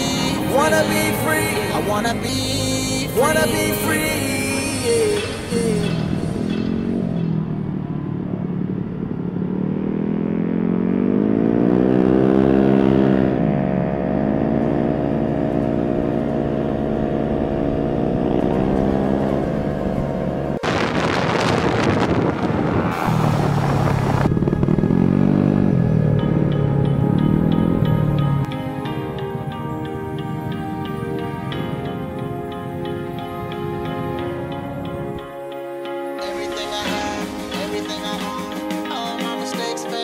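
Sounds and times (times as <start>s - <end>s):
motorbike engine: 0.0s - 35.4s
wind noise on microphone: 20.6s - 25.0s, 33.8s - 35.3s.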